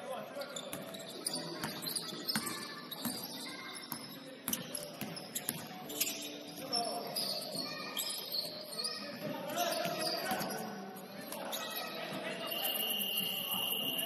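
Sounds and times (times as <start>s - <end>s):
sneakers squeaking: 0.3s - 14.0s
basketball bouncing on court: 1.6s - 5.7s.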